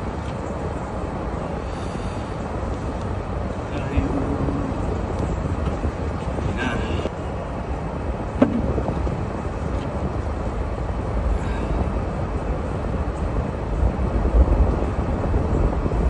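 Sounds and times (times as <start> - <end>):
car rumbling on snowy road: 0.0 - 7.2.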